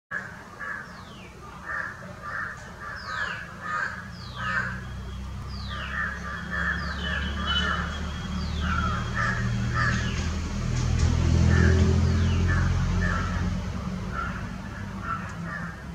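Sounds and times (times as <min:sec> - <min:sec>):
harsh bird calls: 0:00.1 - 0:15.9.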